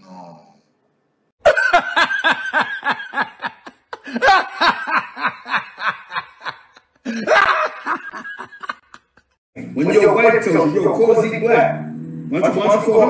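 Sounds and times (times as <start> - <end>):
man laughing loudly: 1.4 - 9.4.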